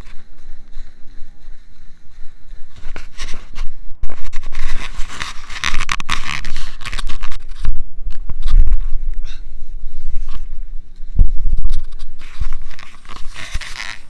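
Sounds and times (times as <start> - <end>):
scraping rustle: 2.7 - 9.0, 11.3 - 14.0.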